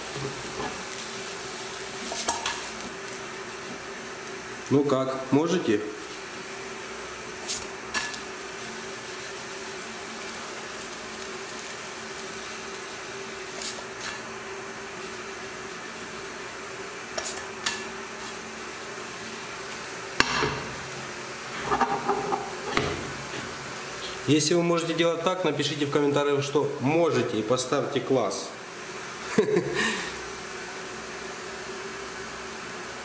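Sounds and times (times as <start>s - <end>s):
frying pan knocks and slaps: 20.2s - 20.7s, 21.7s - 23.1s.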